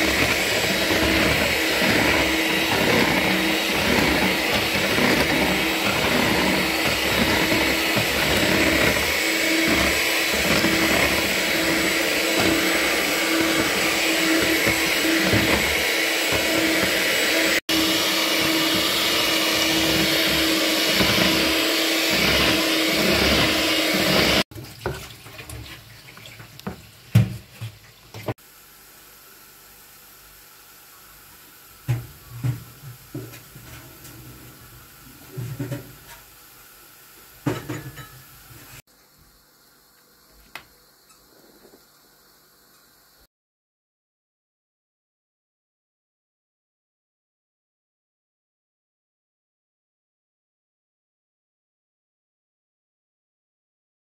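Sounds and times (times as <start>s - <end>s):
electric hand mixer whisking: 0.0s - 24.5s.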